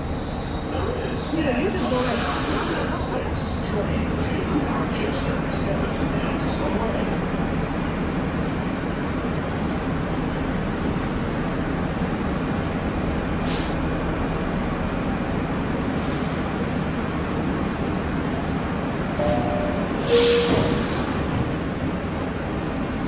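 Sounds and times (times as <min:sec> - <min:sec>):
subway train rumbling: 0:00.0 - 0:23.0
air hisses: 0:13.4 - 0:13.8.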